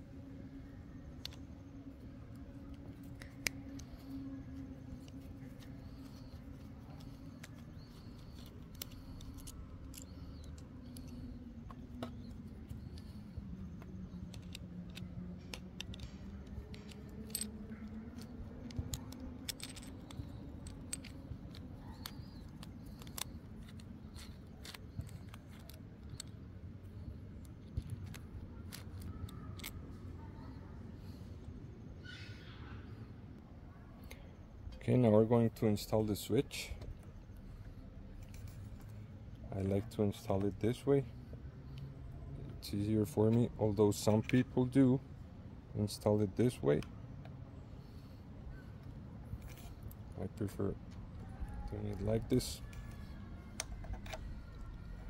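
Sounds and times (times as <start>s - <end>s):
low hum: 0.0s - 55.0s
screwdriver clicking on metal: 5.0s - 26.4s, 51.9s - 55.0s.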